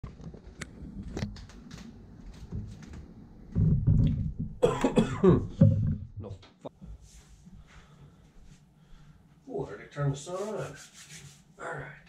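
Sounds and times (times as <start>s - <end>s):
footsteps and light knocks: 0.0s - 4.7s, 5.5s - 9.5s.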